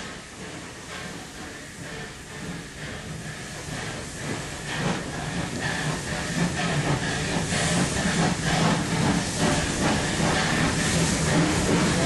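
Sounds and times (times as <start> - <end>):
steam locomotive chuffing: 0.0 - 12.0.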